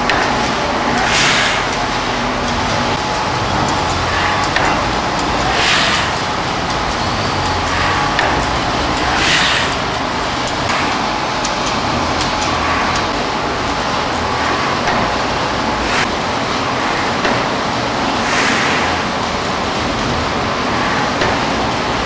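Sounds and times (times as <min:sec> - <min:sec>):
veneer slicer drone: 0:00.0 - 0:22.0
hissing swishes: 0:05.4 - 0:06.4, 0:09.0 - 0:11.1.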